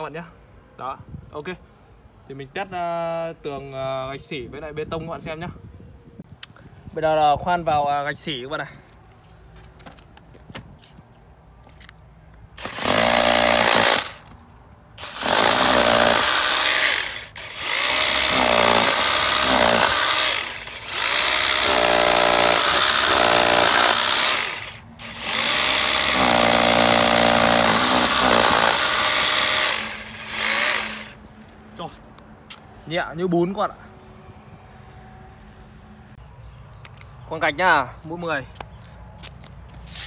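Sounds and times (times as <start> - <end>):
rotary hammer drilling into brick: 12.6 - 14.3, 15.0 - 31.2.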